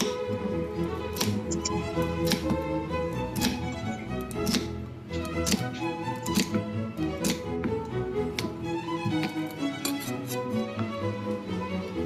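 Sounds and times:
background music: 0.0s - 12.0s
knife chopping celery on board: 1.1s - 1.6s, 2.2s - 2.6s, 3.3s - 3.6s, 4.3s - 4.8s, 5.4s - 6.6s, 7.2s - 7.4s, 8.3s - 10.3s.

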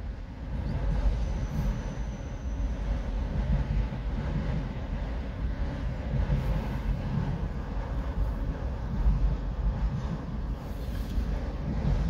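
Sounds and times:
train wheels rumbling on rails: 0.0s - 12.0s
faint high wheel squeal: 0.6s - 3.2s.

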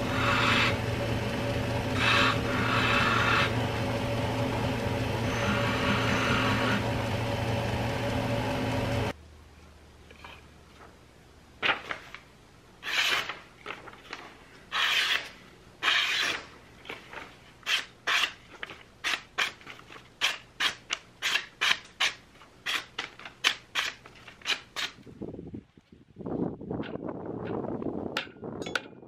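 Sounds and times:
hatchet slicing paper: 12.8s - 25.0s.

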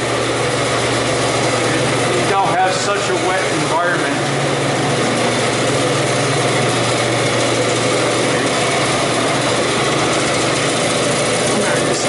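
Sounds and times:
cooler fans whirring: 0.0s - 12.0s.

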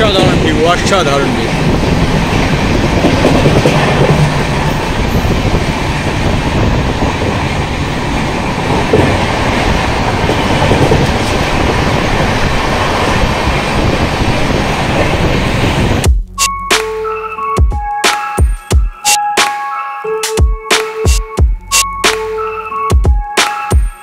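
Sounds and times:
clickety-clack over rail joints: 0.0s - 15.9s
train wheels rumbling on rail: 0.0s - 16.1s.

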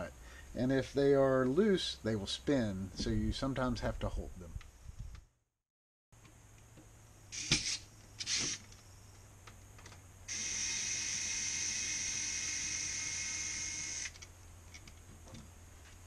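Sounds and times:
electric screwdriver whining: 10.3s - 14.2s.

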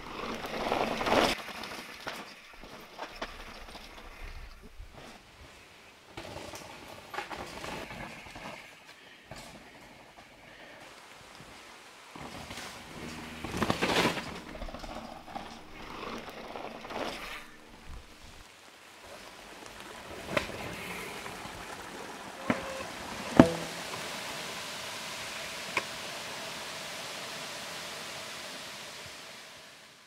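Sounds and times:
bike rattling: 0.0s - 8.8s, 12.1s - 23.9s
bike tyres crunching on dirt: 0.0s - 24.2s
steady hiss: 7.8s - 30.0s
sharp knocks from bike: 22.4s - 23.8s.

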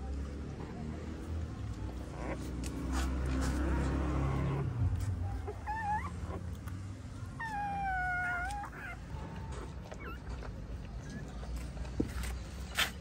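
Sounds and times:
puppies squealing: 1.9s - 11.6s.

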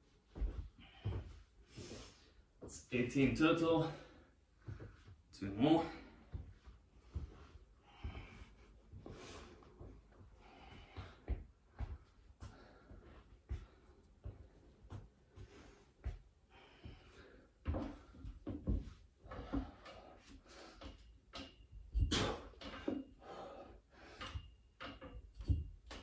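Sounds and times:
man breathing hard: 5.9s - 18.4s, 22.0s - 24.6s
metal frame knocking and creaking: 17.7s - 23.3s, 24.1s - 26.0s.

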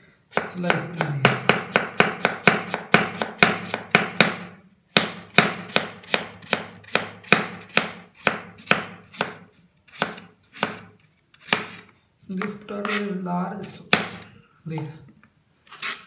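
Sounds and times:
knife slicing potato on board: 0.3s - 4.4s, 5.0s - 13.2s, 13.9s - 14.3s.

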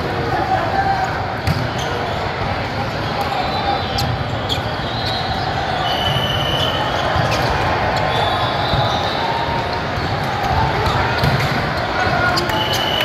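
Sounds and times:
din of sports hall: 0.0s - 13.0s
sneaker squeaks on court floor: 1.4s - 2.2s, 3.0s - 13.0s
balls being hit: 10.0s - 12.5s.

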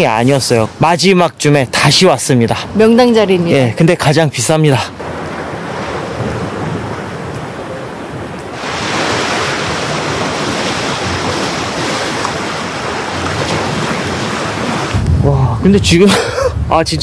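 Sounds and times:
sea surf rushing on shore: 4.4s - 17.0s
wind on microphone: 5.0s - 17.0s.

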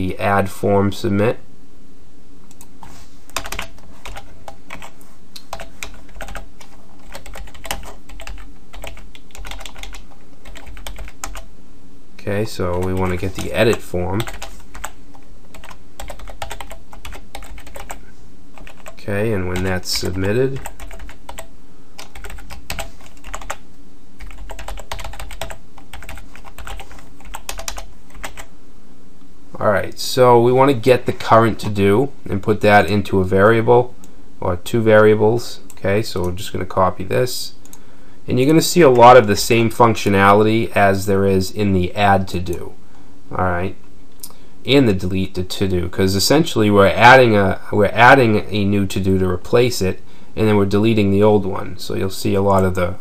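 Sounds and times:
steady low hum: 0.0s - 53.0s
computer keyboard typing: 3.3s - 11.5s, 12.7s - 18.0s, 18.6s - 23.6s, 24.2s - 28.5s.

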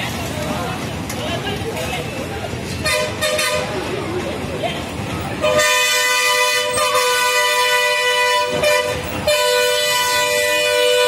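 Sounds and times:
vehicle horn sounding: 2.8s - 3.8s, 5.4s - 11.0s.

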